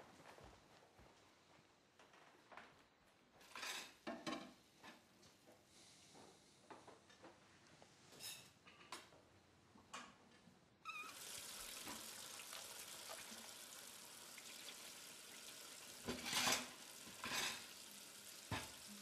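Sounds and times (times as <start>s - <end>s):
tap water running into sink: 10.9s - 19.0s.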